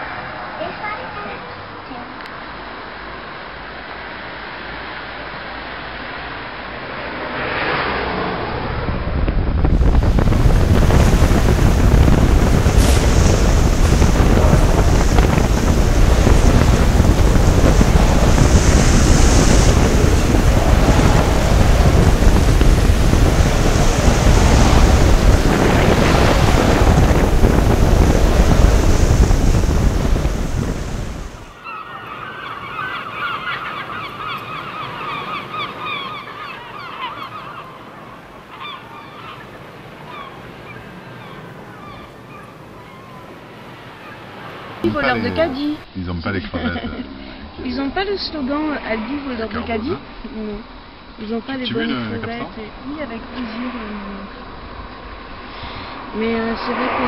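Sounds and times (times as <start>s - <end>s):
storm waves breaking: 6.8s - 45.9s, 47.0s - 57.0s
wind buffeting microphone: 8.4s - 45.9s
animal calls: 31.6s - 45.7s.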